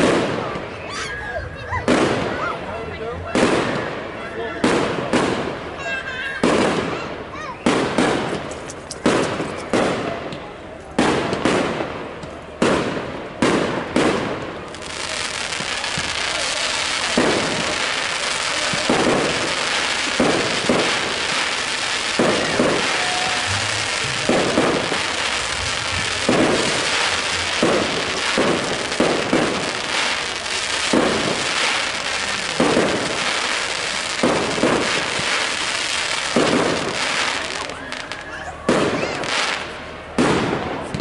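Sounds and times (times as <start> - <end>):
continuous dense noise: 0.0 - 41.0
firework shells bursting: 13.6 - 37.7.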